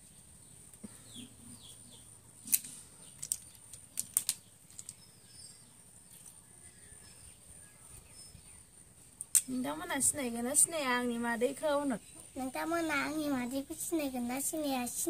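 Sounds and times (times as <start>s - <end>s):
faint bird chirps: 0.0s - 3.7s, 4.4s - 9.7s
sharp small clicks and taps: 2.4s - 5.1s, 9.2s - 9.5s.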